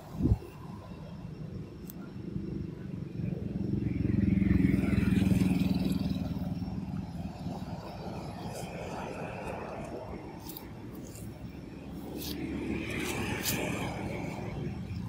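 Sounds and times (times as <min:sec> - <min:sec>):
vehicle passing by: 0:03.3 - 0:15.0.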